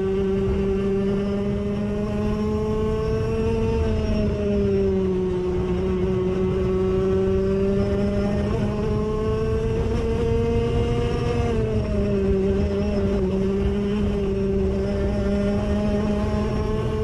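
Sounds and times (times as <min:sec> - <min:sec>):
kart engine at full throttle: 0:00.0 - 0:17.0.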